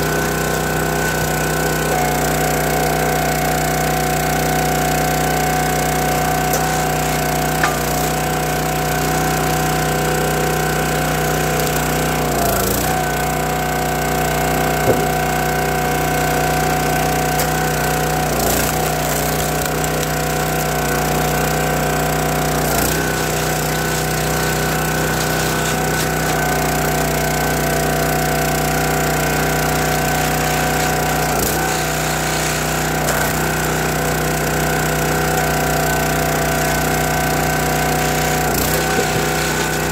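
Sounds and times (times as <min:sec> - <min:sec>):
log splitter engine running: 0:00.0 - 0:39.9
wood splitting cracks: 0:06.3 - 0:08.6, 0:14.7 - 0:15.6, 0:17.0 - 0:21.5, 0:22.4 - 0:27.9, 0:29.5 - 0:34.0, 0:37.9 - 0:39.9.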